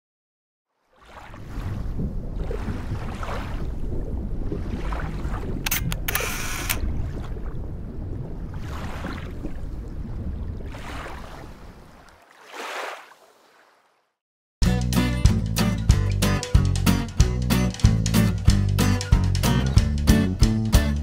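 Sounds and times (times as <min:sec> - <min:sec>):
ocean waves washing: 0:00.9 - 0:13.7
camera shutter click: 0:05.7 - 0:06.8.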